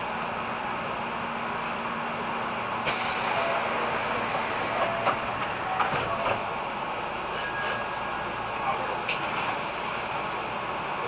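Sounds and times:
compressed air hissing: 2.9s - 4.8s.

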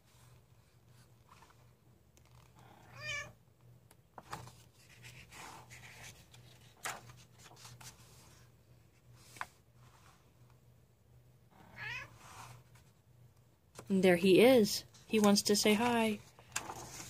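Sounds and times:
cat meowing: 2.8s - 3.4s, 11.7s - 12.1s
paper page turning: 4.2s - 8.2s, 15.8s - 17.0s.

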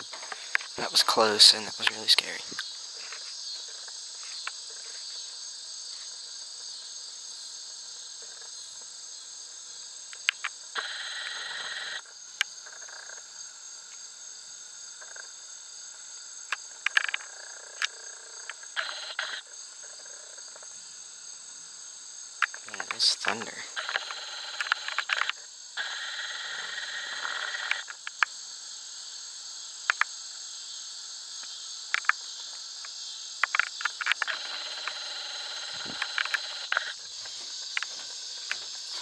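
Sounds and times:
insects chirring: 0.0s - 39.0s
sharp clicks: 32.8s - 35.0s, 35.8s - 37.0s.

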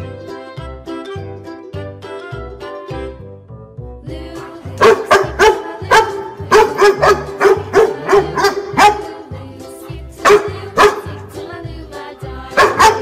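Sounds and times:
children's music with steady beat: 0.0s - 13.0s
dog barking: 4.8s - 9.3s, 10.2s - 11.2s, 12.6s - 13.0s.

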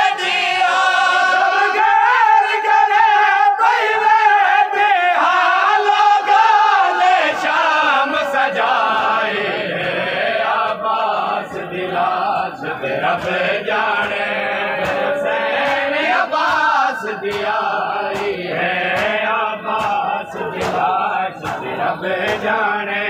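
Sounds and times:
men chanting a lament: 0.0s - 23.0s
rhythmic sharp slaps: 5.2s - 23.0s.

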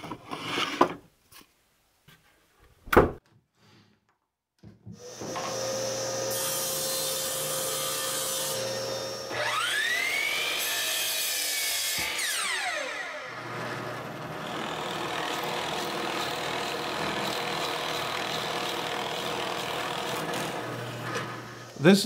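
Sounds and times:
table saw running: 5.0s - 22.0s.

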